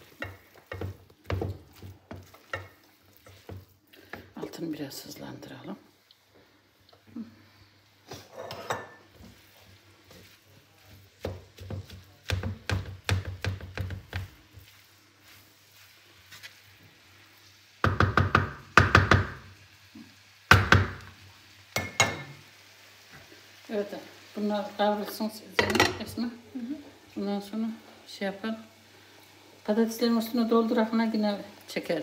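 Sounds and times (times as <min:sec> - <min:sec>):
wooden spoon scraping a frying pan: 0:00.0 - 0:05.6, 0:08.1 - 0:17.0.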